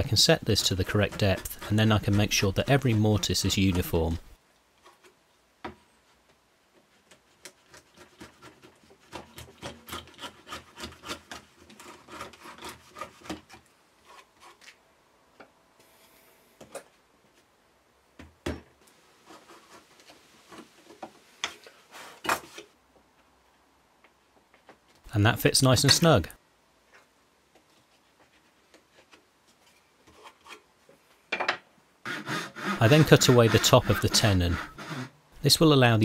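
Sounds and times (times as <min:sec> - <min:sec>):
router plane scraping wood: 0:00.2 - 0:04.3, 0:32.1 - 0:35.1.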